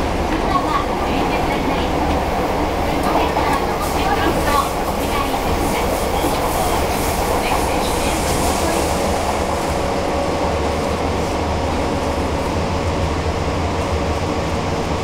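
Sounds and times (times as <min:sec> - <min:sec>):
train hum: 0:00.0 - 0:15.0
train wheels rumbling on rails: 0:00.0 - 0:15.0
rail-joint clatter: 0:00.3 - 0:09.2.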